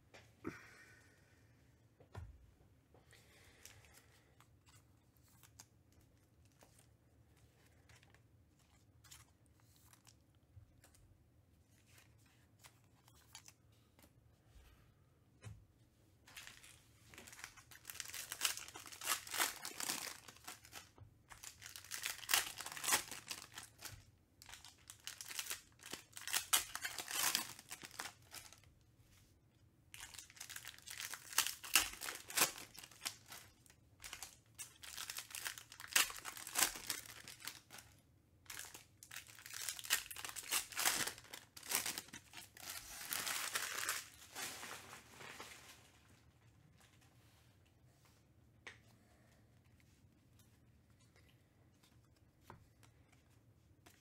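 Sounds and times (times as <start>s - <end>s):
wrappers tearing and crinkling: 16.3s - 28.7s, 29.9s - 45.8s.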